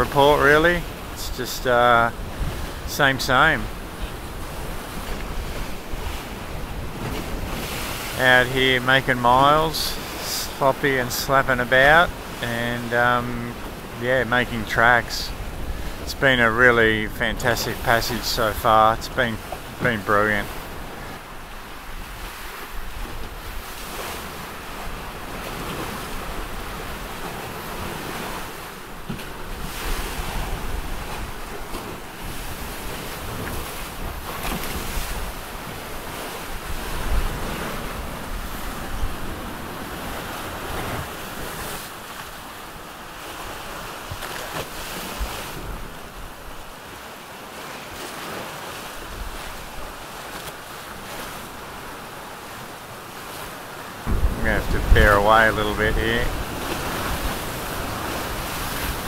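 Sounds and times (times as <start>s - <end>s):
waves slapping boat hulls: 0.0s - 59.0s
wind buffeting microphone: 2.2s - 2.9s, 54.0s - 59.0s.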